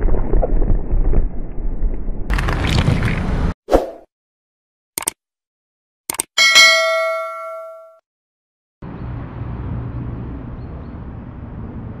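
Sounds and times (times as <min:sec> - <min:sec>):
notification bell ding: 0:06.4 - 0:08.0.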